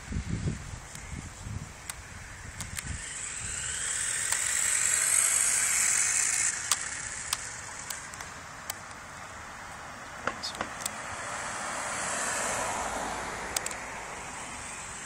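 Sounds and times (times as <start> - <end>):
toy car electric motor whining: 0.2 - 8.8, 13.5 - 15.0
sharp ticks: 1.8 - 9.0, 13.5 - 13.8.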